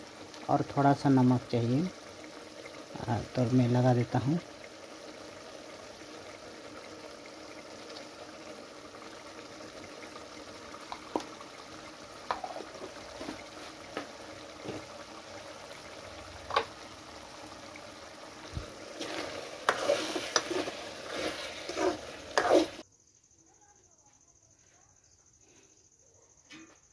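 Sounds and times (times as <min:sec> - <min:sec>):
curry simmering hiss and pops: 0:00.0 - 0:22.9
spoon scraping a pot: 0:12.3 - 0:13.4, 0:19.0 - 0:22.8.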